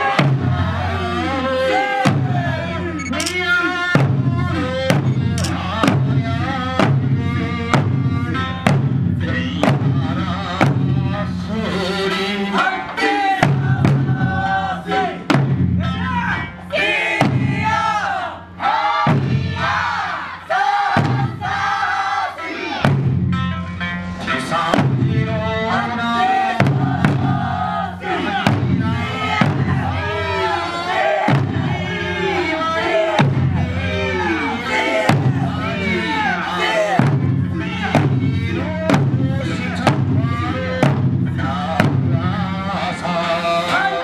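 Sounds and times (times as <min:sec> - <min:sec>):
barrel drums and hand drums: 0:00.0 - 0:18.0, 0:19.0 - 0:20.1, 0:20.9 - 0:21.9, 0:22.8 - 0:43.9
folk singing: 0:00.0 - 0:23.1, 0:24.1 - 0:44.0.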